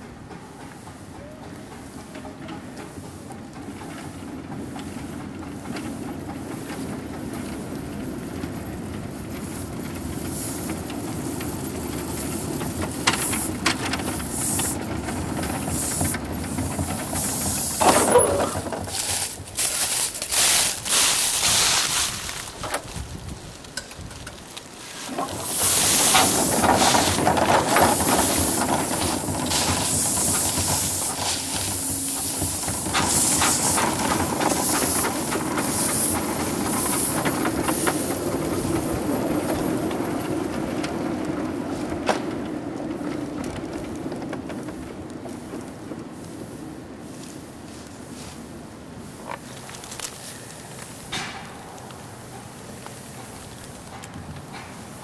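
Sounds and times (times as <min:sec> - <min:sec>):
clicks from rails: 0:00.0 - 0:23.0, 0:49.2 - 0:55.0
steam hissing: 0:09.4 - 0:22.7, 0:24.6 - 0:39.8.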